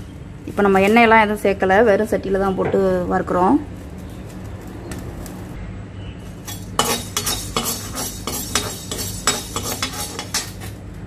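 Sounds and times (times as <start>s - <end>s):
utensil scraping a pan: 6.3s - 10.7s.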